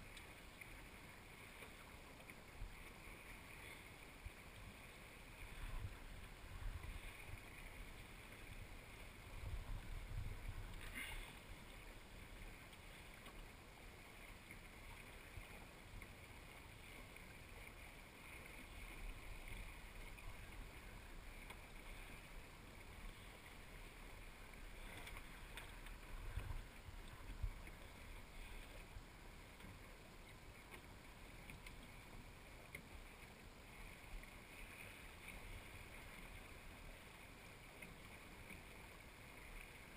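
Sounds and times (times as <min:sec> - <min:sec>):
water washing along a hull: 0:00.0 - 0:39.9
wind rumbling on microphone: 0:05.4 - 0:11.0.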